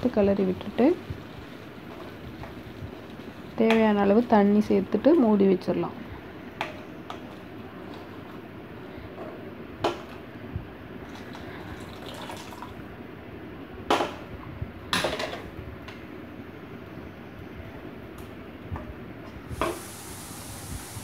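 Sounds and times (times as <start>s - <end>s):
water pouring into pan: 11.1s - 12.8s.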